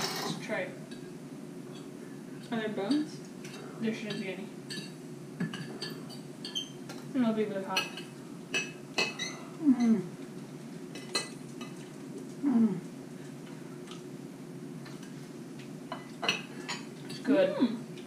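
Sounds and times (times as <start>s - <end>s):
people humming mm: 9.3s - 10.2s, 12.3s - 13.0s, 17.3s - 17.9s.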